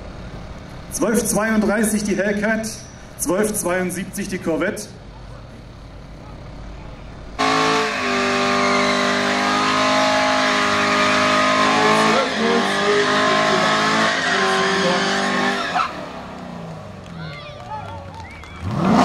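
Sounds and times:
car engine revving high in burnout: 7.4s - 16.9s, 18.6s - 19.0s.

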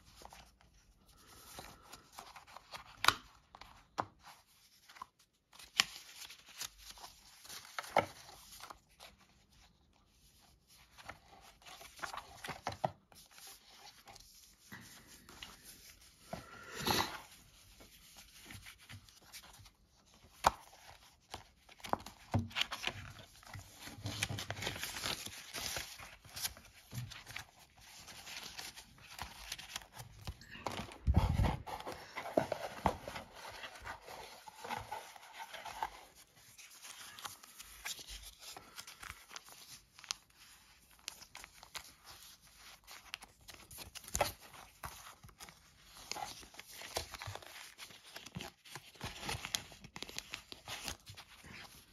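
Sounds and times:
pages rustling and flipping: 0.0s - 51.9s
cardboard scraping: 30.7s - 36.6s.

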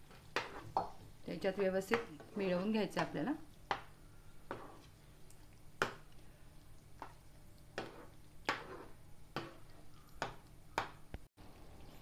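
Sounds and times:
spoon scraping a pan: 0.1s - 1.0s, 3.8s - 5.0s, 7.0s - 10.4s.

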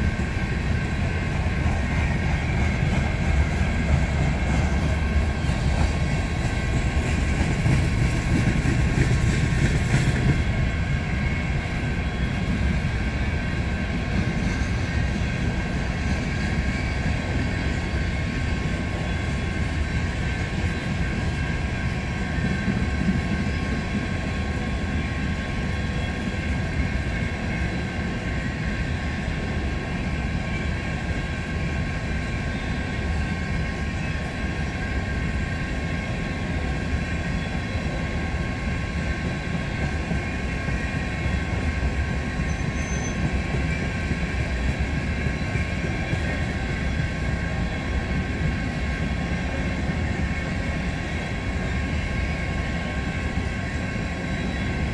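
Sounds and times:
train wheels rumbling on rail: 0.0s - 54.9s.

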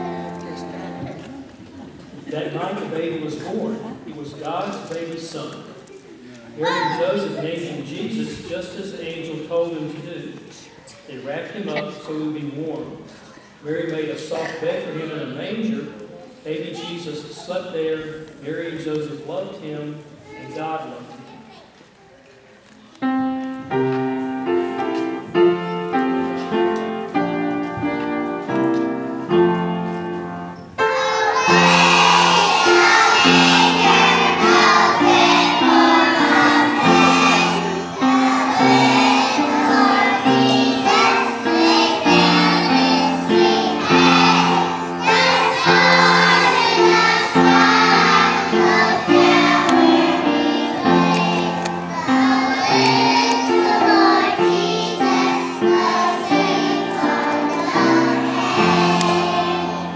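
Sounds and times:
instrumental accompaniment: 23.0s - 59.9s
children singing: 30.8s - 59.9s.

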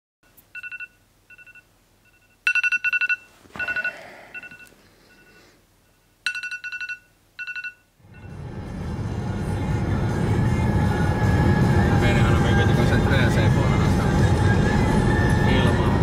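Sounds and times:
smartphone alarm beeping: 0.5s - 8.3s.

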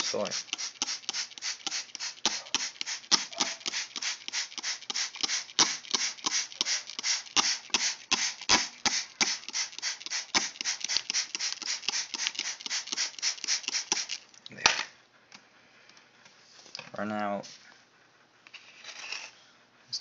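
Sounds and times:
spray bottle spritzing: 0.0s - 14.3s.

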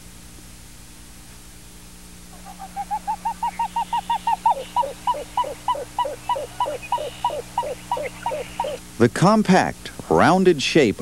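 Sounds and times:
grebe song: 2.4s - 8.8s.

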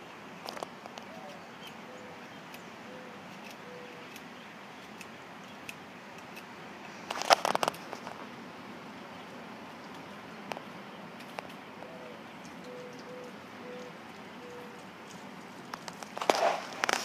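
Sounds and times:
clicks and crackles: 0.4s - 1.8s, 3.3s - 8.3s, 9.8s - 17.0s
dove cooing: 1.0s - 4.1s, 11.8s - 15.1s.

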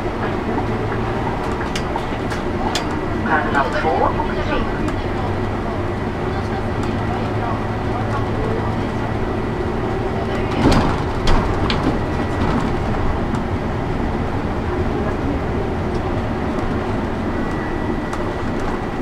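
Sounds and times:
bus engine and road noise: 0.0s - 19.0s
sharp knocks and rattles: 10.5s - 13.4s.

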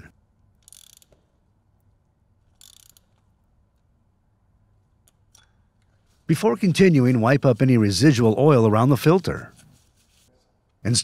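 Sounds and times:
ratchet wrench clicking: 0.6s - 1.3s, 2.5s - 3.3s.

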